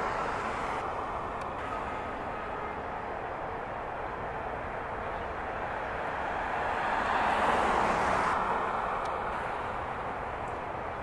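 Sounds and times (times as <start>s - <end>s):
urban traffic hum: 0.0s - 11.0s
vehicle passing: 5.5s - 11.0s.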